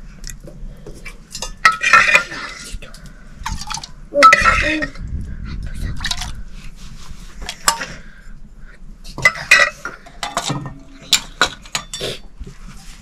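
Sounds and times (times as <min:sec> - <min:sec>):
metal bowls and utensils clattering: 0:01.3 - 0:05.0, 0:07.4 - 0:08.1, 0:09.1 - 0:12.3.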